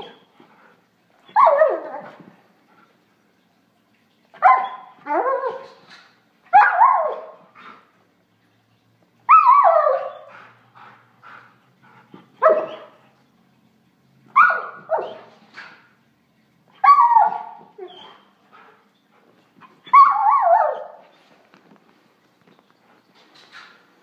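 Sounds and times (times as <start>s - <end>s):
dog yelping barks: 1.3s - 2.1s, 4.4s - 5.6s, 6.5s - 7.4s, 9.3s - 10.3s, 12.4s - 12.9s, 14.3s - 15.3s, 16.8s - 18.1s, 19.8s - 21.0s.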